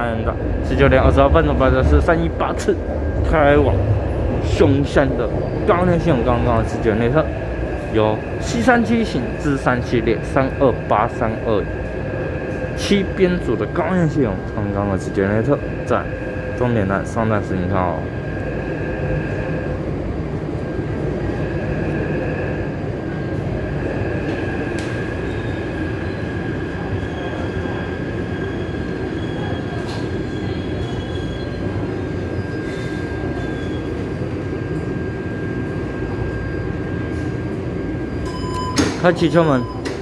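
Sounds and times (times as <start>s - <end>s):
thin steady whine: 0.0s - 29.6s
wheels rumbling on rail: 0.0s - 38.7s.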